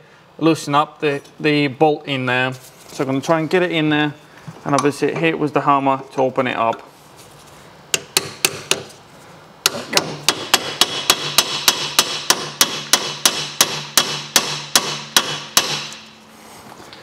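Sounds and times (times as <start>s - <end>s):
hammer striking steel chisel: 7.9s - 8.9s, 9.6s - 16.1s.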